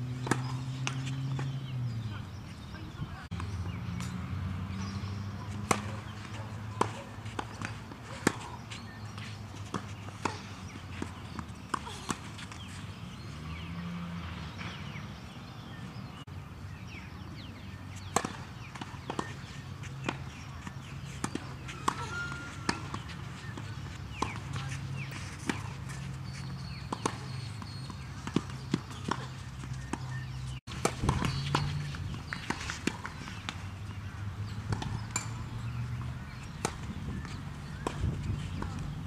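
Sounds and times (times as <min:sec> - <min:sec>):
tennis ball bouncing: 0:00.0 - 0:02.6, 0:03.3 - 0:13.7, 0:17.4 - 0:39.0
tennis racquet hitting ball: 0:00.1 - 0:01.7, 0:04.8 - 0:12.2, 0:18.0 - 0:25.9, 0:26.5 - 0:36.9.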